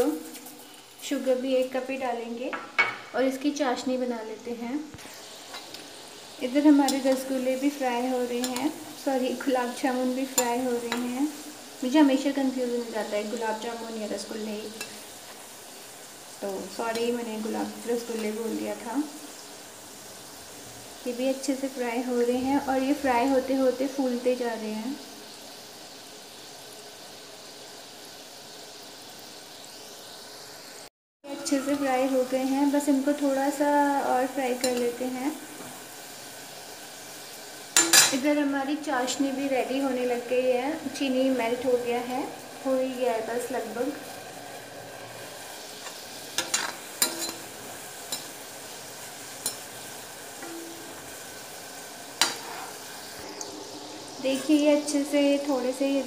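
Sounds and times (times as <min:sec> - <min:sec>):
balls deep-frying in oil: 0:00.0 - 0:56.0
metal spoon scraping a pan: 0:05.0 - 0:05.8, 0:06.7 - 0:11.2, 0:31.3 - 0:32.6, 0:34.5 - 0:35.0, 0:37.8 - 0:38.3, 0:45.7 - 0:48.4, 0:49.0 - 0:51.4, 0:52.2 - 0:53.1, 0:54.2 - 0:54.7.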